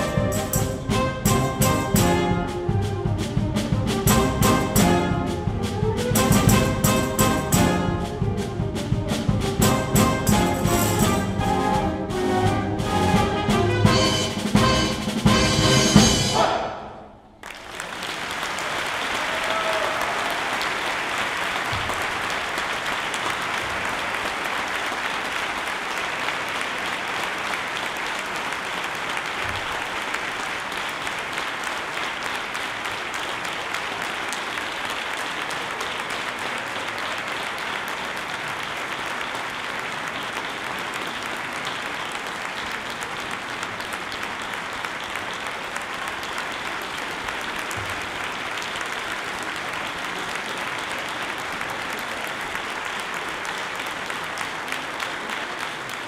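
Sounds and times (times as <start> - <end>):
audience applause: 0.0 - 3.4, 17.4 - 56.0
wind orchestra loud chords: 0.0 - 16.7
drums: 0.0 - 17.0.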